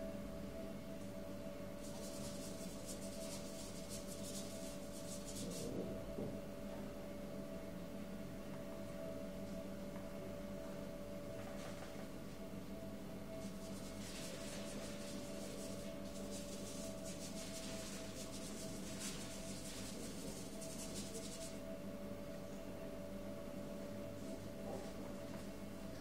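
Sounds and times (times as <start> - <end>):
steady background hum: 0.0 - 26.0
paintbrush scrubbing on paper: 1.8 - 5.7, 13.4 - 21.6.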